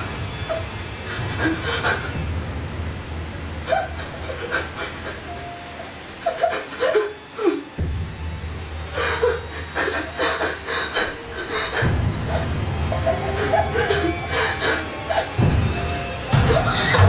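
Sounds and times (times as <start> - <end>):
low droning film score: 0.0 - 17.0
women crying: 3.6 - 7.8, 8.8 - 17.0.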